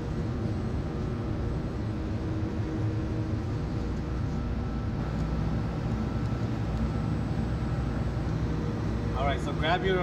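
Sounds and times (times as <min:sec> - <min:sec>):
workshop low rumble and hum: 0:00.0 - 0:10.0.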